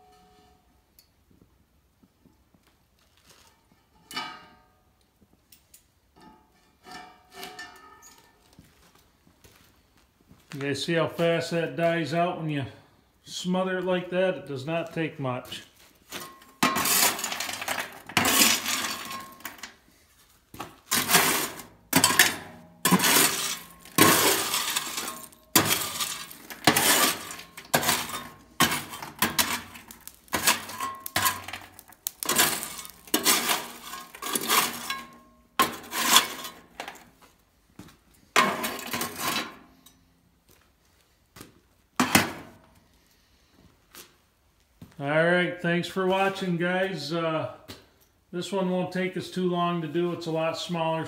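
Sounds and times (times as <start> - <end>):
shovel scraping coal in metal pan: 6.2 - 8.4, 15.9 - 19.8, 20.6 - 37.2, 38.3 - 40.0.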